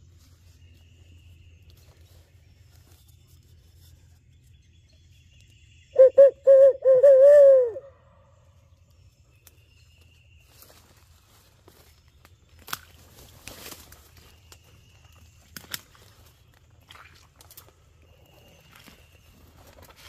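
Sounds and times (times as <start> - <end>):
owl hooting: 6.0 - 8.1.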